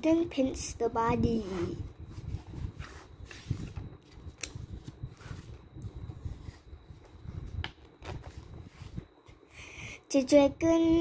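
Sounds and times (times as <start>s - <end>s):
paper pages rustling: 2.1s - 7.1s.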